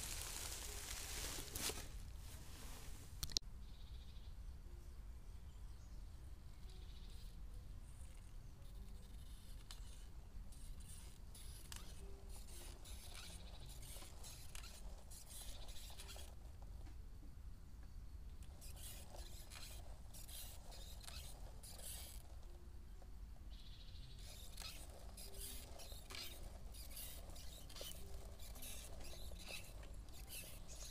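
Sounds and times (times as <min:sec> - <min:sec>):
tyres scraping and hissing: 0:24.2 - 0:30.9.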